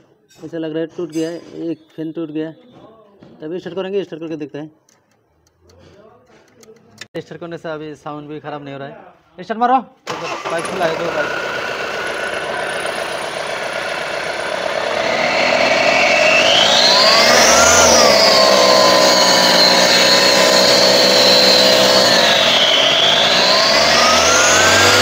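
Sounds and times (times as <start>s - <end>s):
diesel engine revving: 10.1s - 25.0s
high turbo whine: 10.2s - 25.0s.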